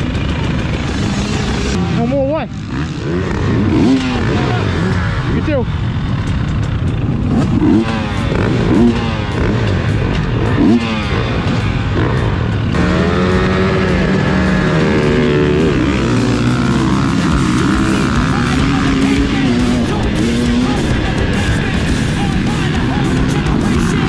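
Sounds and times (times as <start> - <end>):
motocross bike engines revving: 0.0 - 24.0.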